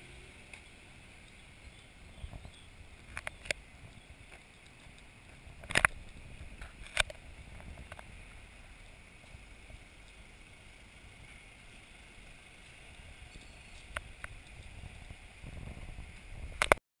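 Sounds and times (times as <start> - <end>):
wind rumble on microphone: 1.5 - 10.0, 12.9 - 16.8.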